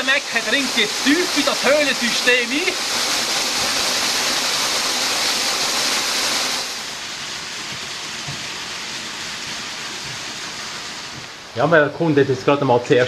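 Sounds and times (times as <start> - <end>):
waterfall rushing: 0.0 - 7.2.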